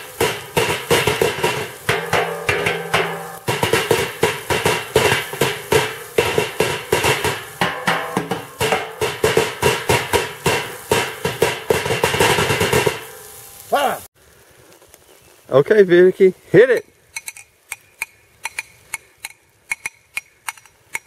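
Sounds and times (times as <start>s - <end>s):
metallic clanks on steel barrel: 0.0s - 13.6s.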